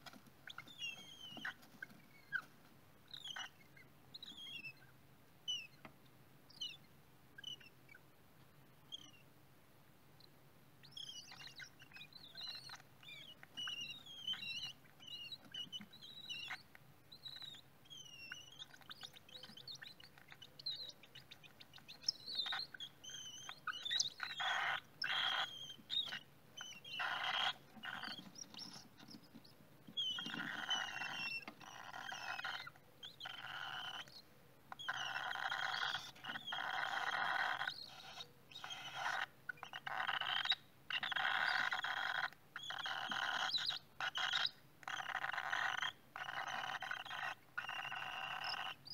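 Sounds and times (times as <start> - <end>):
bird chicks chirping: 0.0 - 5.9, 6.5 - 8.1, 8.8 - 9.3, 10.2 - 48.9
raspy buzzing begging calls: 21.4 - 28.9, 30.0 - 34.1, 34.8 - 48.9.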